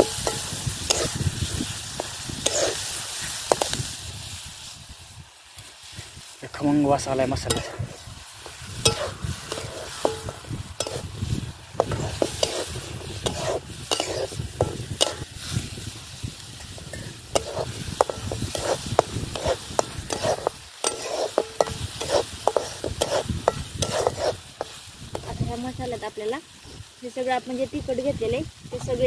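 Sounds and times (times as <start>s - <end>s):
spatula scraping pan: 0.0s - 3.8s, 7.4s - 15.8s, 16.6s - 25.4s
spices sizzling in oil: 0.0s - 29.0s.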